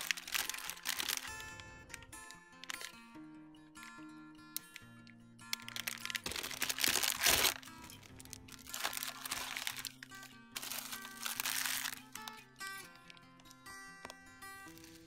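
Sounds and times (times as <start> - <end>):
plastic bags crinkling: 0.0 - 1.7, 2.6 - 3.0, 5.5 - 13.3, 14.7 - 15.0
acoustic guitar music: 0.0 - 15.0.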